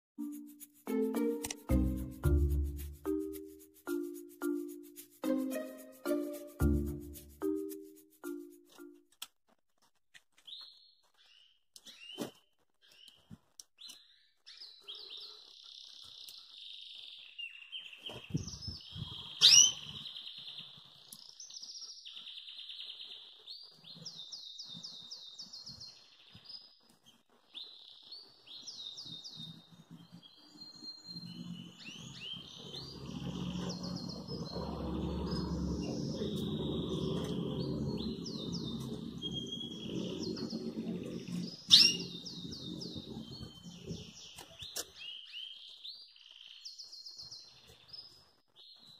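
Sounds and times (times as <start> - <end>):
bird singing twittering song: 10.4 - 48.9
low rumble: 31.5 - 44.2.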